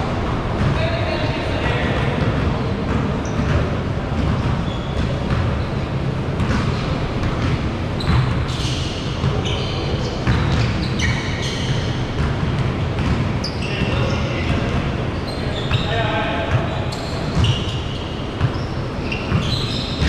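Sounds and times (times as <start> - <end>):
sneakers squeaking: 0.0 - 20.0
basketball bouncing on hardwood: 11.8 - 13.3.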